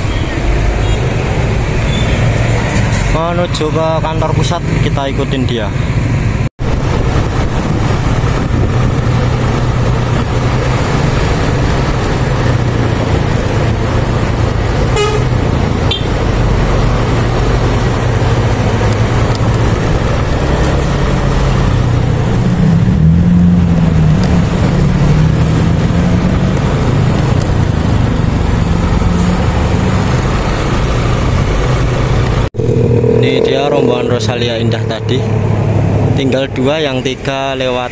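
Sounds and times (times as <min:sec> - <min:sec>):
bus engine drone: 0:00.0 - 0:37.9
road and tyre noise: 0:00.0 - 0:37.9
bus horn toot: 0:14.9 - 0:16.2.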